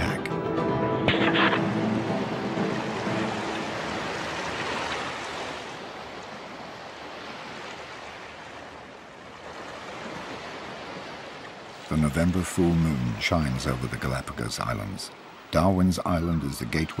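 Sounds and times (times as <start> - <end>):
water rushing: 0.0 - 17.0.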